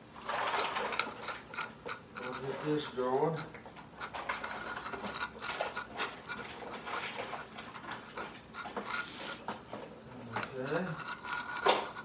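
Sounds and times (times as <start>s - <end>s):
cats chewing and lapping food: 0.0s - 12.0s.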